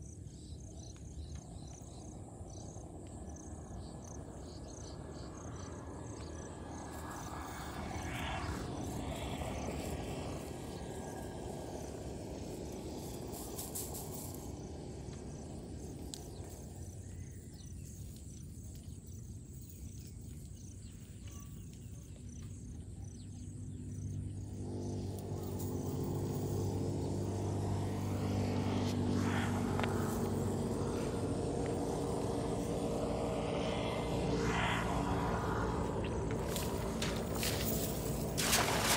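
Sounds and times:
vehicle engine drone: 0.0 - 20.8, 22.8 - 38.9
insects chirping: 0.0 - 38.9.

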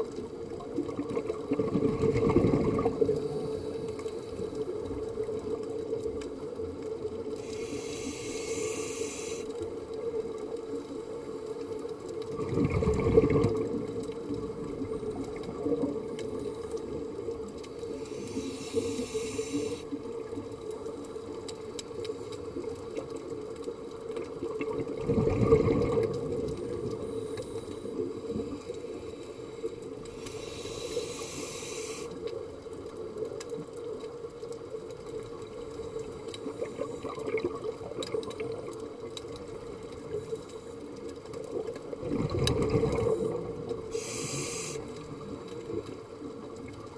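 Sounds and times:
exhaled bubbles gurgling: 0.0 - 10.8, 11.8 - 46.9
faint clicks: 0.0 - 25.0, 25.7 - 46.9
regulator inhalation hiss: 7.4 - 9.6, 17.8 - 20.0, 29.0 - 32.2, 43.9 - 45.0.

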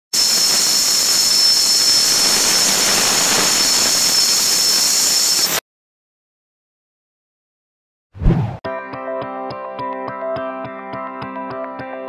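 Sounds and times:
loud hiss: 0.2 - 5.6
thin high whine: 0.2 - 5.6.

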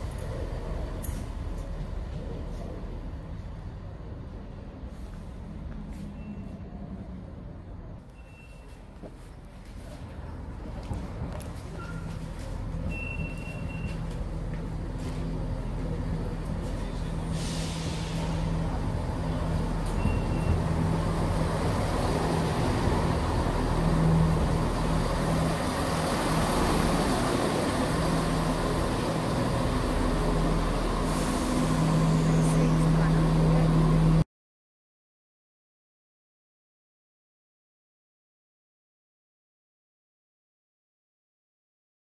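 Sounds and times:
train engines humming: 0.0 - 34.2
air hiss: 17.3 - 18.5.

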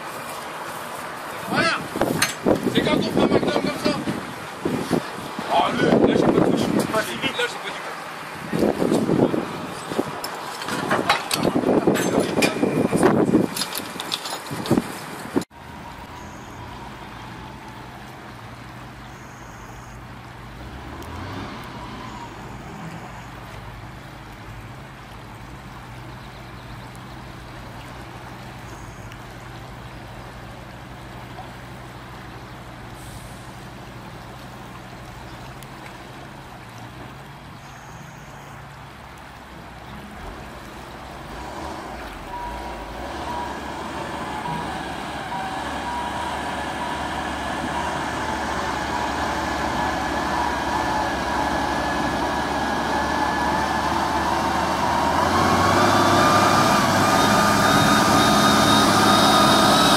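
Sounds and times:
water splashing around wheels: 0.0 - 59.9
diesel truck engine running: 39.9 - 59.9.

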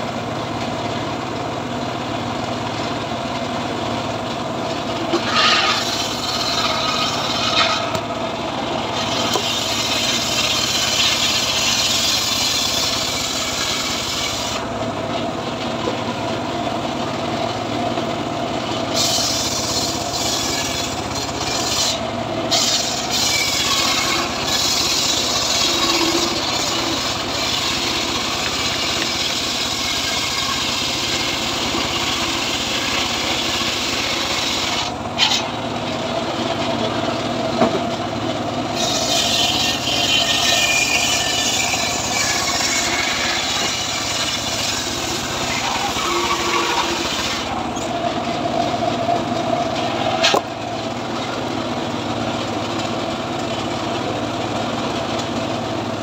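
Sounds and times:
engine running: 0.0 - 56.0
saw blade cutting wood: 4.7 - 14.7, 18.8 - 37.0, 38.7 - 51.4.

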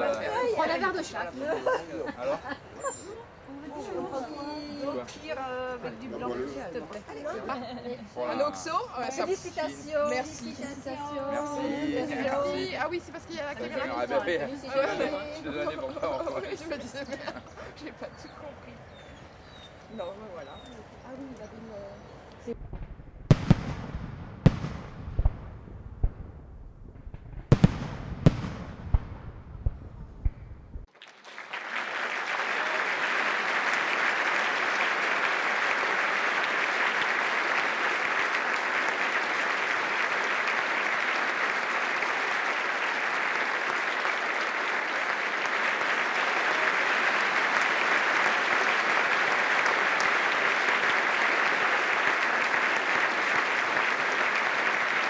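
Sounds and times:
crowd applause: 0.0 - 2.2, 30.9 - 55.0
firework bangs with crackle: 22.5 - 30.9.

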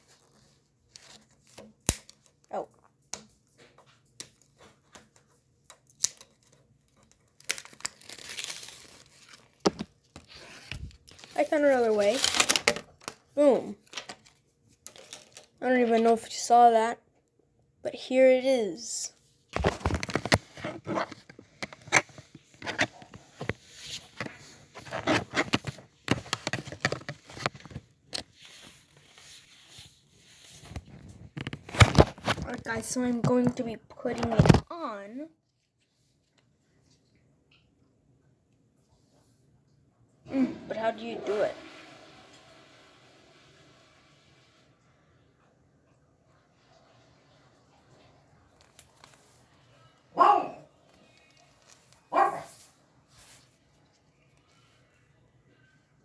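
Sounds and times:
packaging crinkling: 5.9 - 13.2, 13.8 - 15.6
handling scrapes and rustles: 19.4 - 34.6, 51.0 - 54.1.

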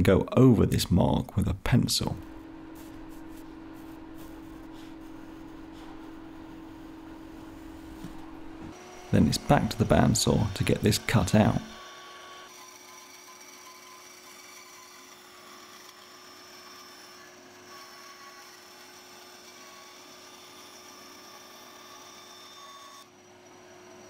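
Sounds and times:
bandsaw cutting plywood: 4.0 - 23.1.

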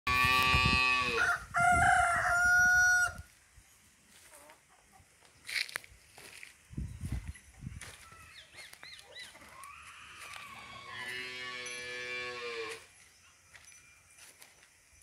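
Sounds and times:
rooster crowing: 0.7 - 3.2.

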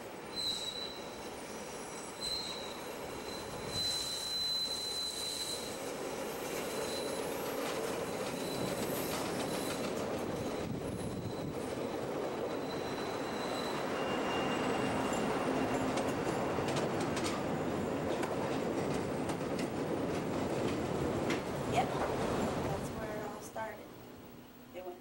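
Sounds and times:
train wheels squealing: 0.0 - 19.5
elevated train running: 0.0 - 25.0.

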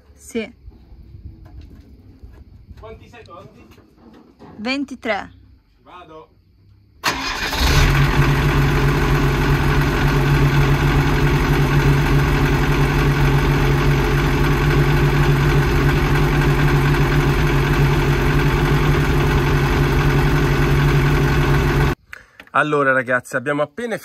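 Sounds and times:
truck engine running: 7.1 - 22.0.

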